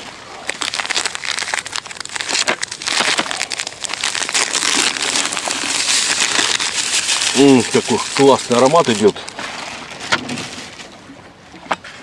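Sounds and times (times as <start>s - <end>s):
plastic packet crinkling: 0.4s - 9.3s
dry bait pouring into bucket: 0.6s - 9.1s.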